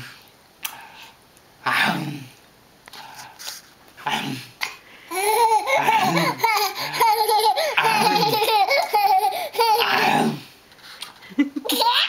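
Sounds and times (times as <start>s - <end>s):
toddler laughing: 5.1s - 10.2s, 11.6s - 12.0s.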